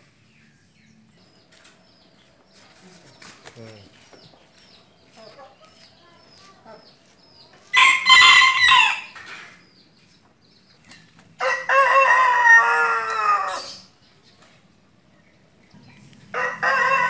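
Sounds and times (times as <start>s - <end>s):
rooster crowing: 7.7s - 9.3s, 11.4s - 13.9s, 16.3s - 17.0s.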